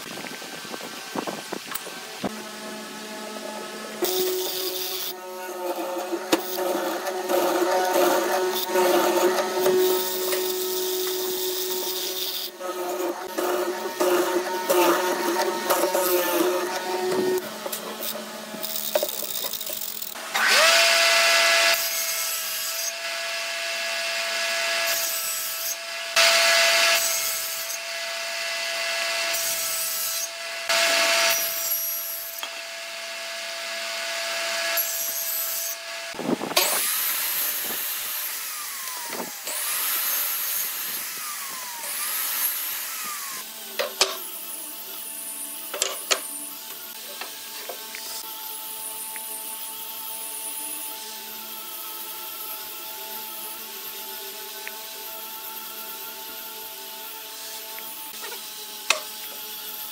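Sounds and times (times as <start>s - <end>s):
saw cutting wood: 0.0s - 59.9s
woodworking machine motor humming: 0.3s - 21.8s, 35.8s - 44.9s.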